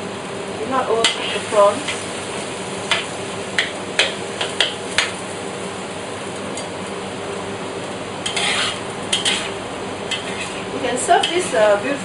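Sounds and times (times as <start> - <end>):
food sizzling in a wok: 0.0 - 12.0
metal ladle scraping a wok: 1.0 - 2.0, 8.2 - 11.8.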